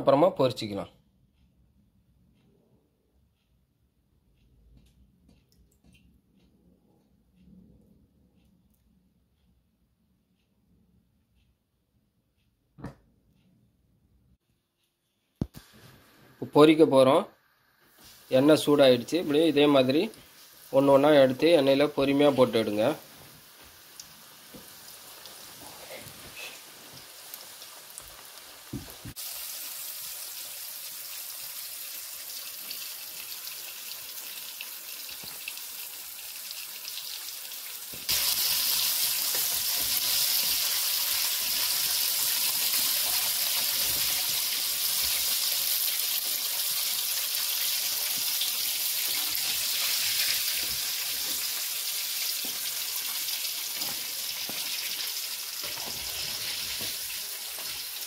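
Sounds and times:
chicken deep-frying in hot oil: 15.5s - 58.0s.

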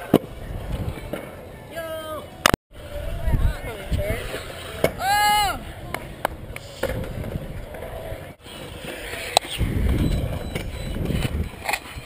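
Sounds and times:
scooter wheels rolling on concrete: 2.8s - 12.0s.

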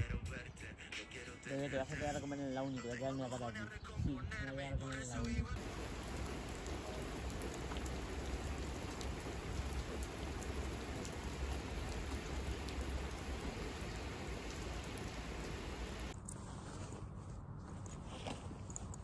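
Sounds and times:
rain falling on street: 5.6s - 16.2s.

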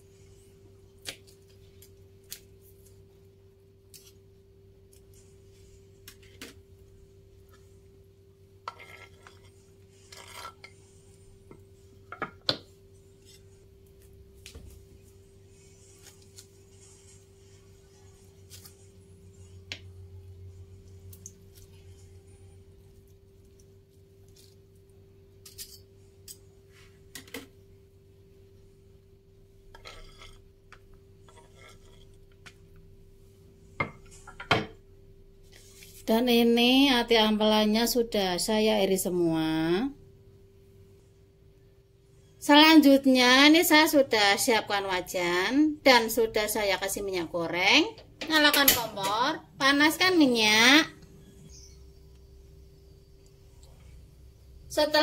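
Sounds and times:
faint steady hum: 0.0s - 55.0s
knife scraping on wooden board: 8.6s - 10.8s, 29.7s - 30.5s, 31.2s - 32.2s.

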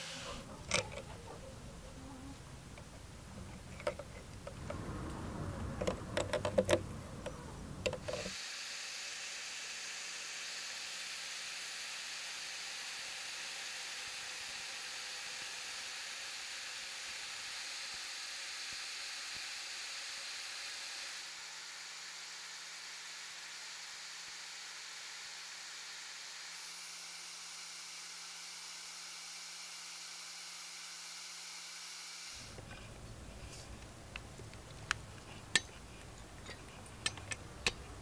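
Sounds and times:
drill chuck clicking and rattling: 3.7s - 4.6s, 36.4s - 37.8s.

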